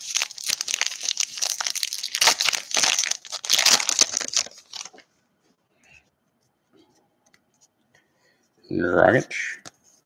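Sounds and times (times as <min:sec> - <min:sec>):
wrapper crinkling: 0:00.0 - 0:05.0.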